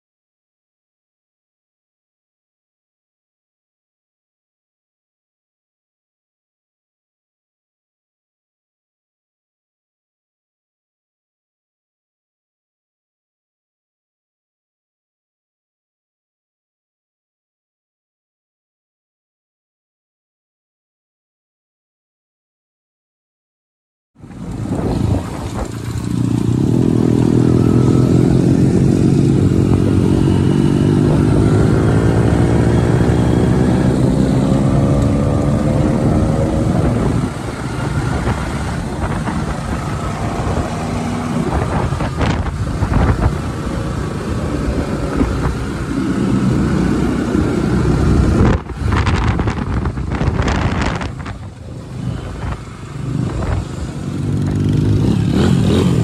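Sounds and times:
motorcycle engine accelerating: 0:24.2 - 0:56.0.

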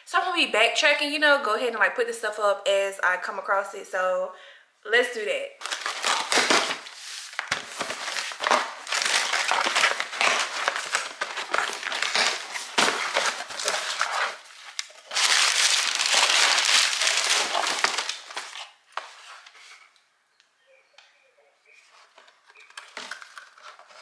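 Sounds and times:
plastic packaging crinkling: 0:05.6 - 0:19.6, 0:22.2 - 0:24.0.

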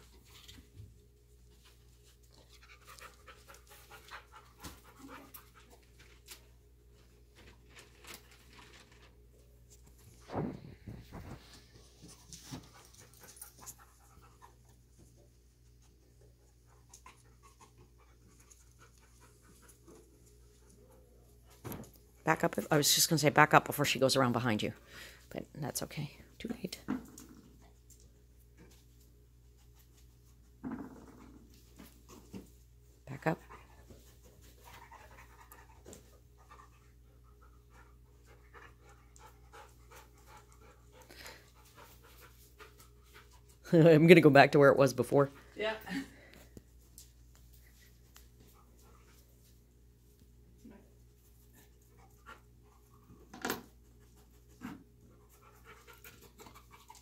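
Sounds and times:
dog panting faintly: 0:01.5 - 0:06.4, 0:11.4 - 0:21.7, 0:31.7 - 0:43.7, 0:45.2 - 0:57.0.

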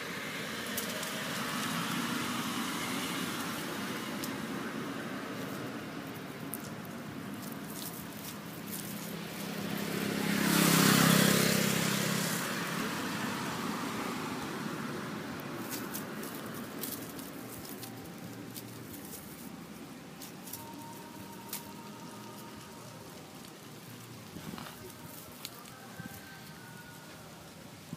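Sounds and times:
vehicle engine passing by: 0:00.0 - 0:27.9
light clicks and rustles: 0:05.4 - 0:09.5, 0:15.6 - 0:21.8.

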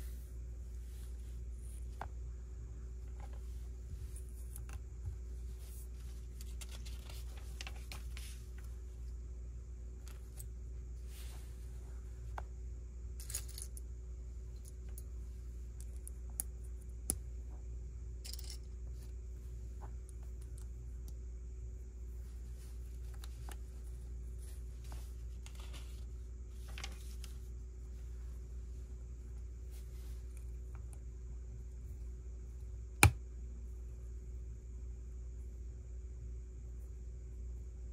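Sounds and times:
soft rustling: 0:00.0 - 0:09.2, 0:09.9 - 0:12.6, 0:21.8 - 0:30.9
steady low hum: 0:00.0 - 0:37.9.

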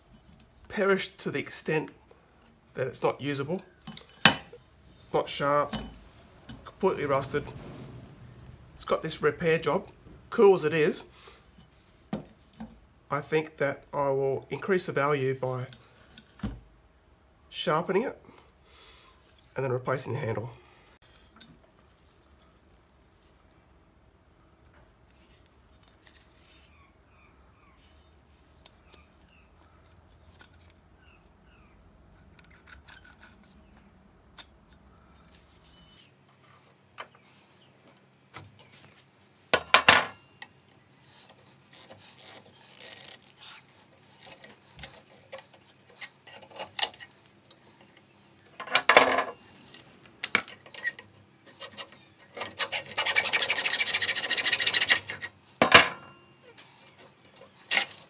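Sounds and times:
hacksaw sawing: 0:51.5 - 0:55.4.

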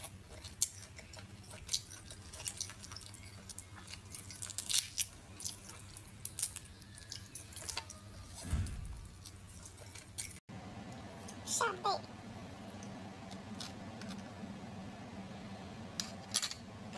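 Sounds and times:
close-up chewing: 0:00.0 - 0:10.4.

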